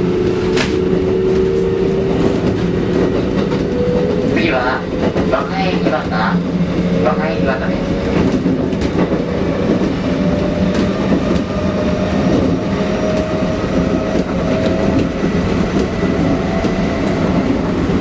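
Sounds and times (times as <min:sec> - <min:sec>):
rail joint clicks: 0:00.0 - 0:18.0
train wheels rumbling on rail: 0:00.0 - 0:18.0.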